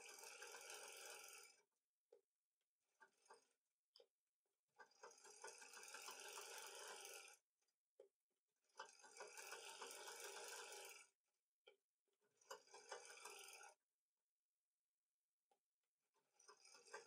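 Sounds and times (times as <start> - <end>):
sewing machine stitching: 0.1 - 1.5, 4.8 - 7.4, 8.6 - 11.1, 12.3 - 13.8, 16.2 - 17.0.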